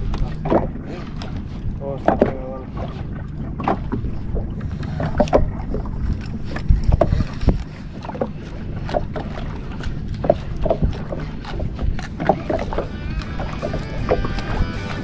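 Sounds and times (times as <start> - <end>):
knocks and taps on boat: 0.0 - 15.0
low rumble of wind and water: 0.0 - 15.0.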